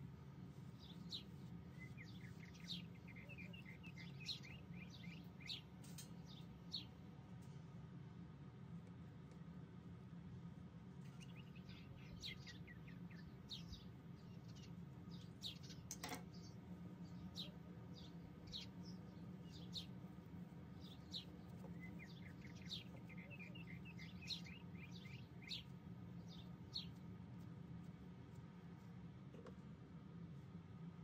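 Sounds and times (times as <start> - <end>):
low steady hum: 0.0 - 31.0
bird chirping: 0.7 - 6.9, 11.0 - 20.1, 20.8 - 27.0.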